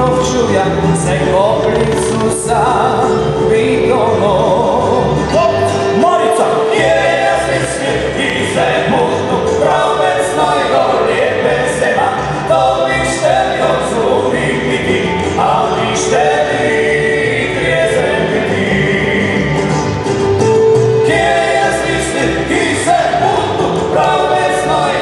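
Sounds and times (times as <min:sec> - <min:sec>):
double bass: 0:00.0 - 0:25.0
guitar: 0:00.0 - 0:25.0
men singing in harmony: 0:00.0 - 0:25.0.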